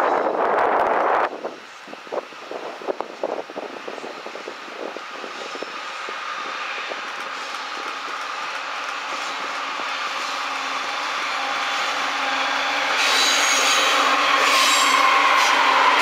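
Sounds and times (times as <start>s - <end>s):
diesel locomotives passing: 0.0s - 16.0s.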